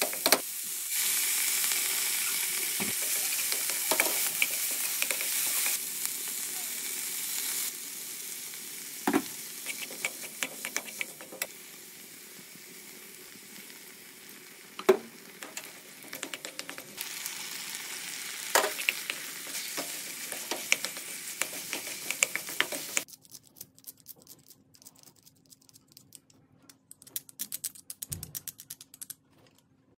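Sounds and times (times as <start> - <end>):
vegetables sizzling in a frying pan: 0.0 - 23.1
spatula stirring: 3.0 - 5.8, 9.6 - 11.5, 16.1 - 17.0, 18.6 - 25.4
spatula knocking on pan: 19.8 - 23.0.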